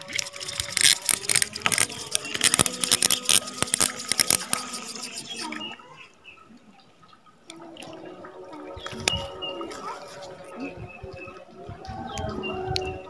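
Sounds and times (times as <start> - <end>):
fish splashing in water: 0.0 - 6.1.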